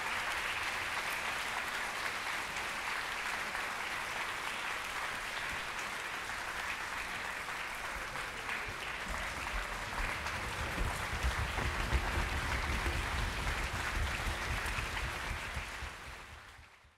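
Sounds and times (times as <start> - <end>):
audience applauding: 0.0 - 16.9
low rumble: 9.1 - 16.6.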